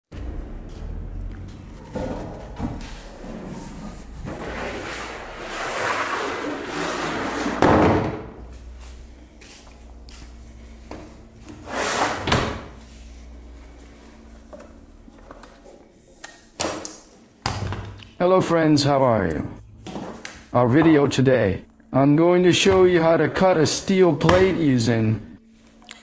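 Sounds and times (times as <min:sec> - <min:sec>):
steel sheet scraping on bench: 0:01.8 - 0:07.6
loud thud: 0:07.6 - 0:08.4.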